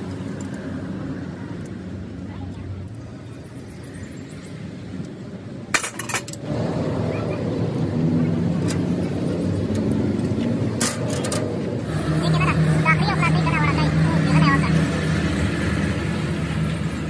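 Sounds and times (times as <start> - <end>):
engine running: 5.7 - 17.0.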